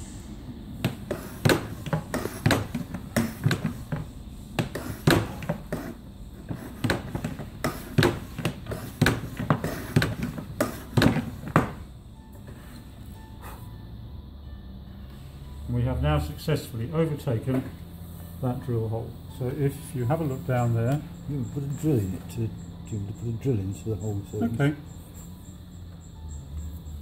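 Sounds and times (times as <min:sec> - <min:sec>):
hand cutter knocking and clunking: 0:00.8 - 0:11.9.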